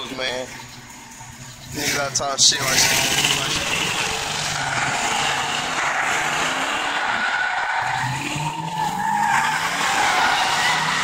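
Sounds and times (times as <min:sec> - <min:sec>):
car engine revving: 0:00.0 - 0:11.0
tires squealing on pavement: 0:01.7 - 0:11.0.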